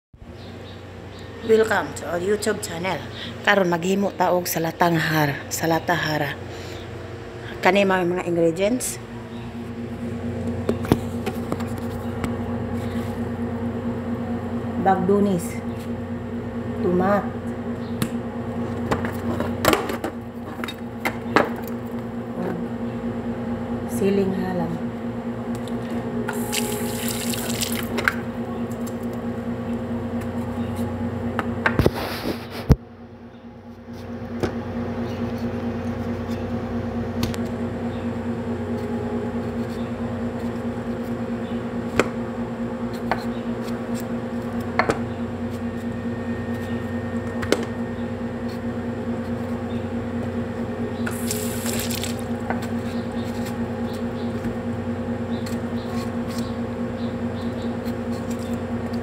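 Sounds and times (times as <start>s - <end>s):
steady low hum: 0.2s - 59.0s
tap water running into sink: 26.4s - 27.9s.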